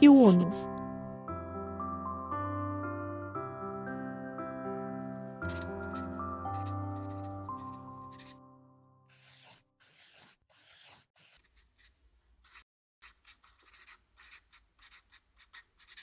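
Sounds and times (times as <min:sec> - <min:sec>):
soft music: 0:00.0 - 0:09.1
marker scratching on whiteboard: 0:05.5 - 0:08.4, 0:09.1 - 0:16.0.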